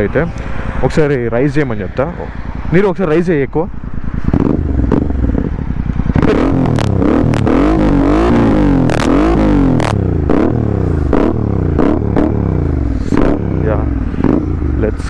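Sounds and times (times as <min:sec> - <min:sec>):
motorcycle engine revving: 0:03.7 - 0:15.0.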